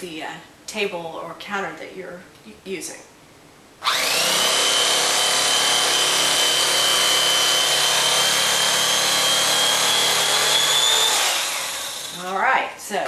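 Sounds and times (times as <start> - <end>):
electric knife whining: 3.8 - 12.3
blades sawing through foam: 3.9 - 12.2.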